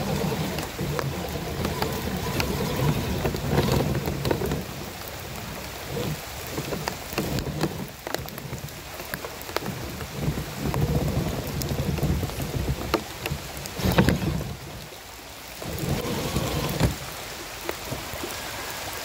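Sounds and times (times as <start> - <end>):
toy truck motor rumble: 15.6 - 17.0.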